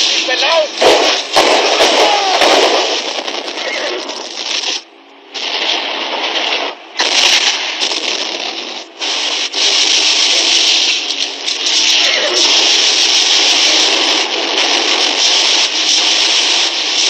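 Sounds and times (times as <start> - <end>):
rapid gunfire: 0.0 - 17.0.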